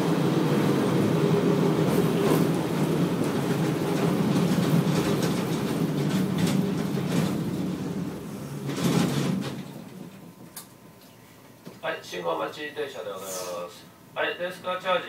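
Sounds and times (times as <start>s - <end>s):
tram motors humming: 0.0s - 11.1s
wheels clicking on track: 3.3s - 7.7s.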